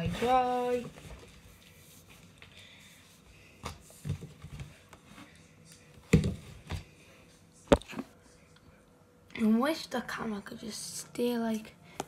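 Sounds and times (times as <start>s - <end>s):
towel wiping plastic: 0.0s - 2.3s.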